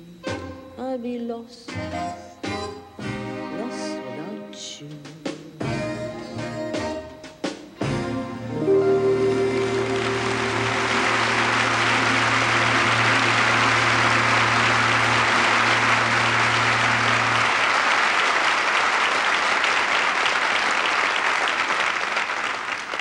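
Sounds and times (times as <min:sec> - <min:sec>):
held low chord: 0:08.1 - 0:17.6
audience applauding loudly: 0:09.2 - 0:23.0.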